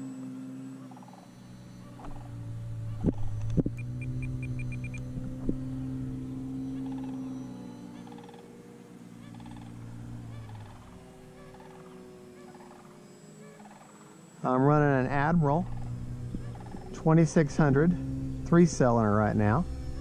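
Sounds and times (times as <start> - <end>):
model plane propeller droning: 0.0 - 20.0
quick high beeps: 3.7 - 5.1.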